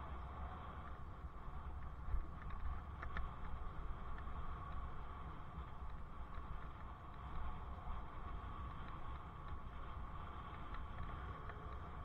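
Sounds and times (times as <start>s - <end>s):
bicycle riding noise: 0.0s - 12.0s
faint ticks: 0.1s - 12.0s.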